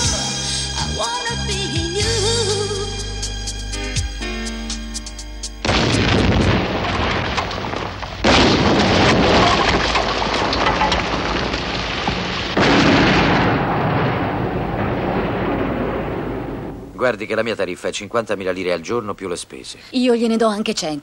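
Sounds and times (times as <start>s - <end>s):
music: 0.0s - 5.7s
explosions with rumble: 5.6s - 17.4s.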